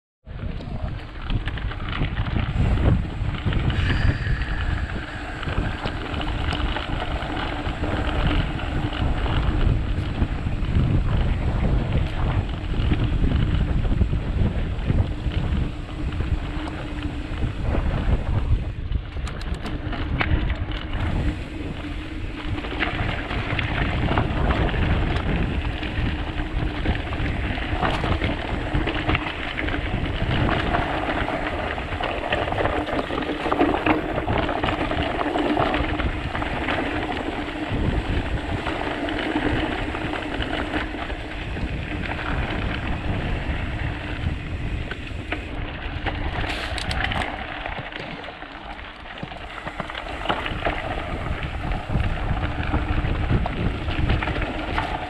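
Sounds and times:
wind noise on microphone: 0.2s - 55.0s
bike clicking and rattling: 0.3s - 55.0s
tyres crunching on gravel: 21.1s - 55.0s.

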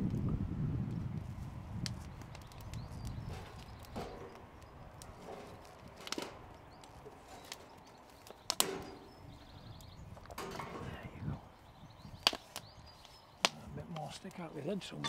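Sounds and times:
sticks knocking into metal fire box: 3.3s - 7.7s, 8.5s - 9.2s, 10.3s - 11.0s.

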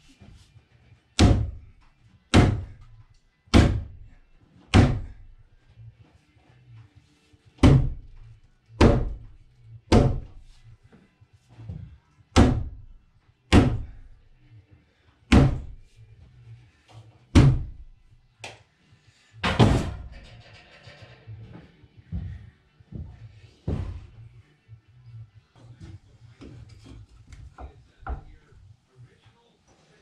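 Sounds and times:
loud sharp knocks: 1.2s - 1.6s, 2.3s - 2.7s, 3.5s - 4.0s, 7.6s - 8.0s, 9.9s - 10.4s, 15.3s - 15.8s
rough bang: 19.4s - 20.7s.

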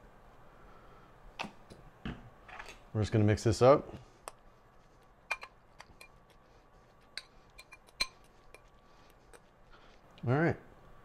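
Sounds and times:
fork clinking against ceramic bowl: 7.2s - 8.7s.

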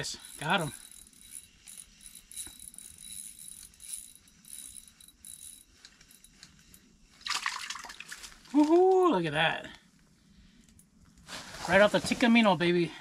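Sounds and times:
fishing reel clicking whir: 0.0s - 6.9s.

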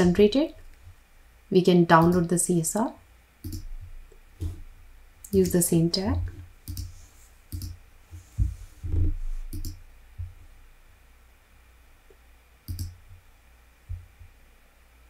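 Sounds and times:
computer mouse clicks: 3.4s - 3.7s, 6.6s - 6.9s, 7.5s - 7.8s, 9.5s - 9.8s, 12.7s - 13.0s
soft low thumps: 8.2s - 10.6s, 13.8s - 14.4s.

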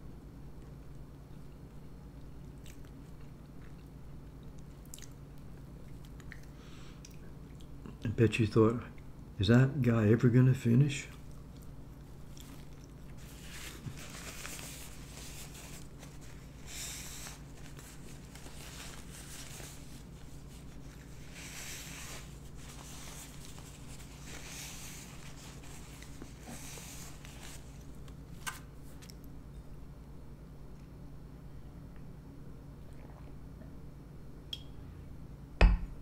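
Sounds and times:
steady low hum: 0.0s - 36.0s
paper napkin rustling: 12.2s - 29.1s.

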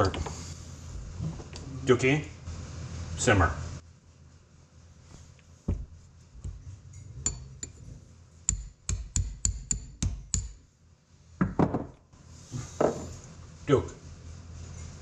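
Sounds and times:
hammer striking steel punch: 8.5s - 10.6s.

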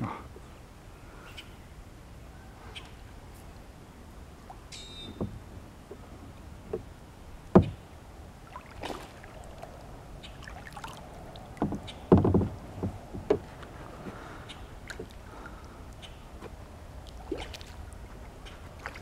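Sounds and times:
knocks on plastic kayak hull: 7.6s - 7.8s, 11.6s - 13.5s.

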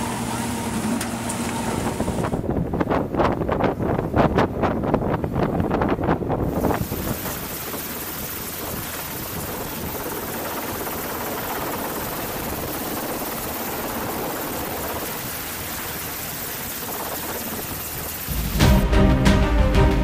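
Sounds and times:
helicopter hovering: 6.4s - 18.8s.

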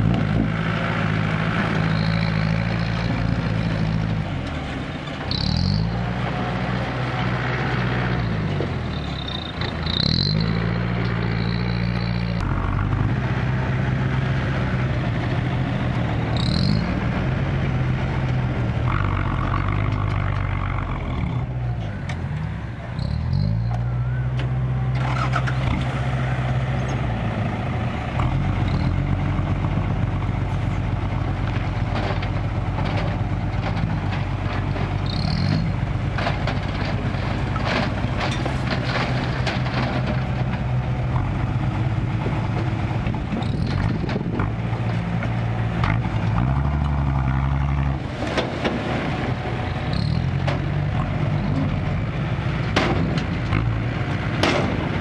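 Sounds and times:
diesel truck engine running: 0.0s - 55.0s
soil and rocks sliding: 24.8s - 55.0s.

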